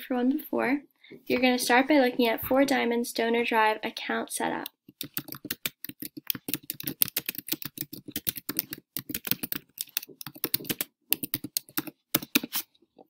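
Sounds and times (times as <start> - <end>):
typing on computer keyboard: 4.8 - 12.6.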